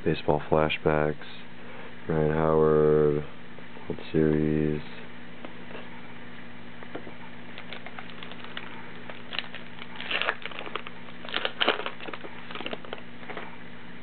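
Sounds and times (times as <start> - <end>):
foil wrapper crinkling and tearing: 7.6 - 13.1.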